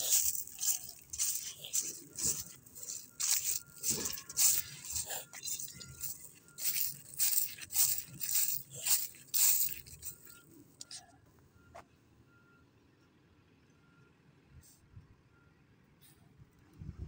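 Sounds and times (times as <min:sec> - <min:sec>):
footsteps crunching dry leaves: 0:00.0 - 0:10.5
faint reversing alarm beeps: 0:00.0 - 0:16.0.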